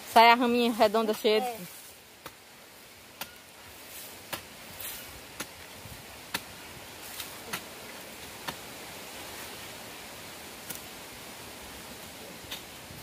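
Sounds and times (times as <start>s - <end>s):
steady background hiss: 0.0s - 13.0s
hoe chopping into dry soil: 3.2s - 7.8s, 8.4s - 8.7s.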